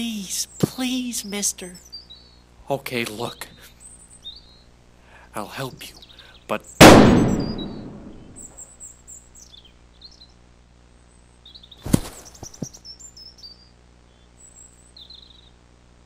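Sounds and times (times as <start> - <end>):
birds chirping: 0.0 - 10.4, 11.1 - 15.6
gunshot echoing: 6.8 - 8.4
body falling with heavy thud: 11.8 - 12.7.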